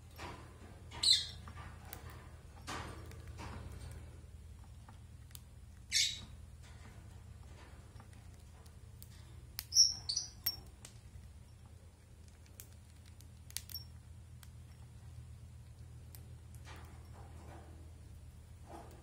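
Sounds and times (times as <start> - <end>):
high bird chirp: 1.0 - 1.4, 5.9 - 6.3, 9.7 - 10.4
beak clicking on seed husks: 8.7 - 11.0, 12.3 - 13.8.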